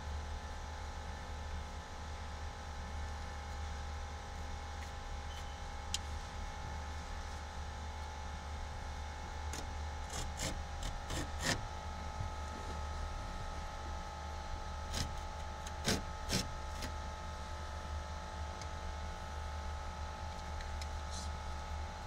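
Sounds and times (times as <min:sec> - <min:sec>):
low electrical hum: 0:00.0 - 0:22.0
knife slicing through carpet: 0:10.1 - 0:11.6.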